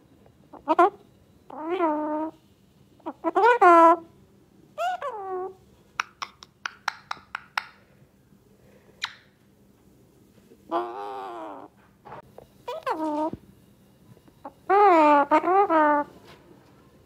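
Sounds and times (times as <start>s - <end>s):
parakeet calls: 3.0s - 4.1s, 4.8s - 7.4s, 10.7s - 11.7s, 12.7s - 13.4s, 14.4s - 16.1s.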